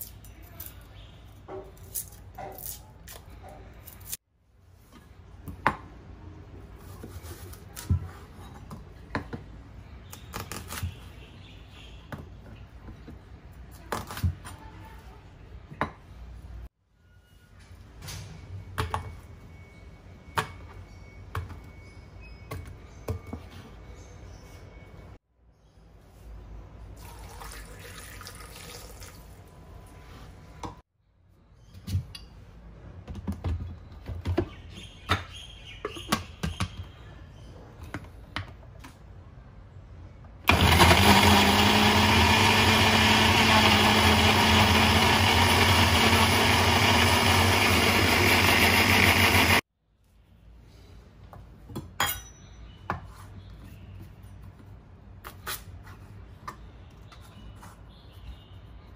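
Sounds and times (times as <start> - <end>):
electric blender running: 40.5 - 49.6.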